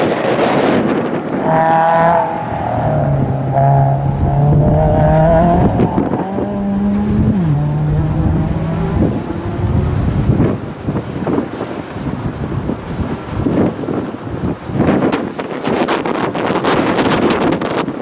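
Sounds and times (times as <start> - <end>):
rally car engines at high revs: 0.1 - 10.9.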